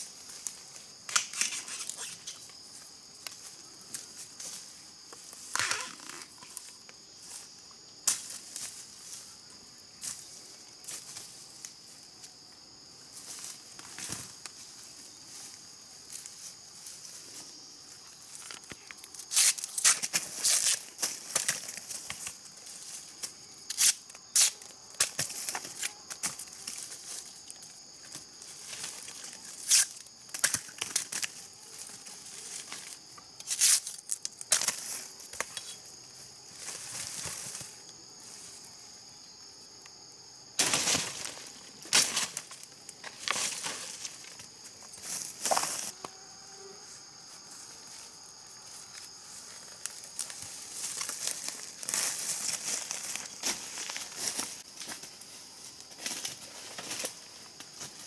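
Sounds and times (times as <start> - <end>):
insects shrilling: 0.0 - 58.0
leaves rustling and tearing: 5.5 - 6.7, 18.3 - 22.4.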